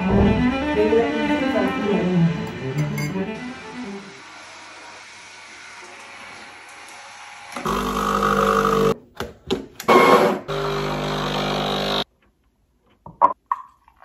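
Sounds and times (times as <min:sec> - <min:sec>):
espresso machine pump humming: 0:07.6 - 0:09.0.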